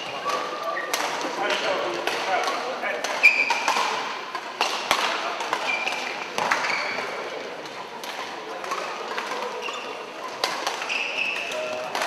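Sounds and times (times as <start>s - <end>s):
racket hitting shuttlecock: 2.0s - 6.7s, 7.6s - 12.0s
shoes squeaking on court: 3.2s - 3.9s, 5.6s - 7.3s, 8.7s - 12.0s.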